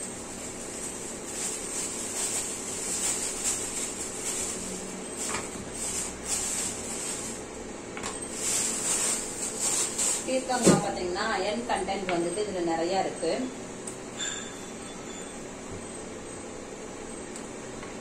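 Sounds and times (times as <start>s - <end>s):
plastic bag crinkling: 0.6s - 7.5s, 8.3s - 10.9s.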